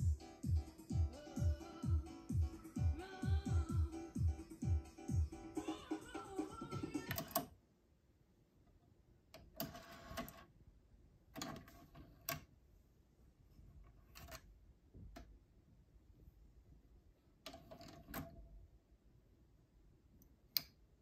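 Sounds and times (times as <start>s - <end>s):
music playing: 0.0s - 7.4s.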